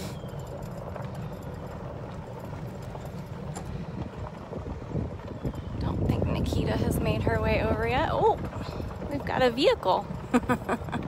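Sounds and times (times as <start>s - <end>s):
light clicks and rattles: 0.0s - 4.7s
golf cart rumbling: 0.0s - 11.0s.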